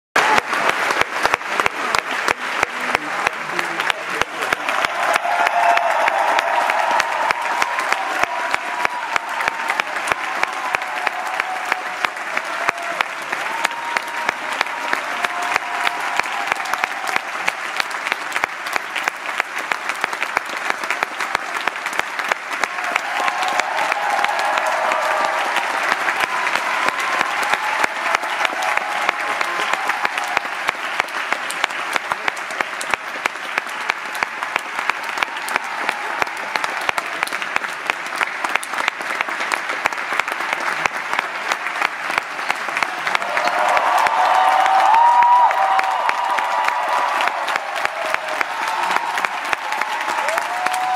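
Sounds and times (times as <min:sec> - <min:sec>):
audience cheering: 0:00.2 - 0:02.3, 0:02.9 - 0:50.9
audience applauding: 0:00.2 - 0:50.9.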